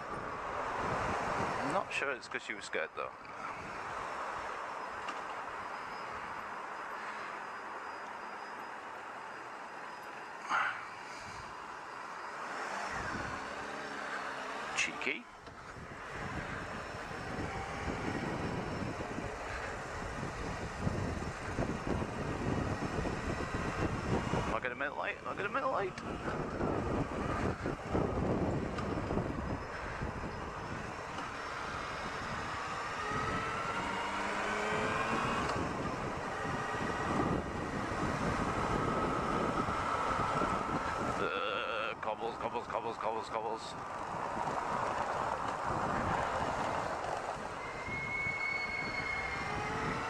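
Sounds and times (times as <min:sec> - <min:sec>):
wind noise: 0:00.0 - 0:01.9, 0:12.8 - 0:13.6, 0:15.4 - 0:42.5, 0:43.6 - 0:50.0
motorcycle riding: 0:00.0 - 0:02.0, 0:09.7 - 0:50.0
brakes squealing: 0:00.0 - 0:50.0
road noise: 0:00.0 - 0:50.0.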